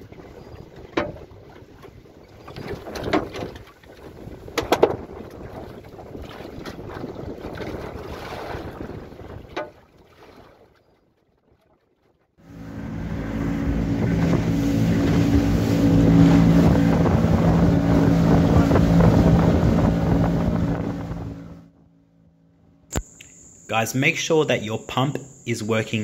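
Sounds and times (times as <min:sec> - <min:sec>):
water against boat: 0:00.0 - 0:22.2
wind: 0:00.0 - 0:26.0
rushing water: 0:12.4 - 0:21.6
outboard motor running: 0:12.4 - 0:26.0.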